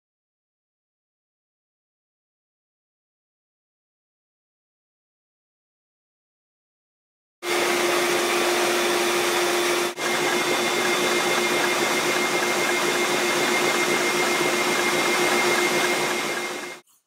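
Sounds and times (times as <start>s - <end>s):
vacuum motor whining: 7.4s - 16.8s.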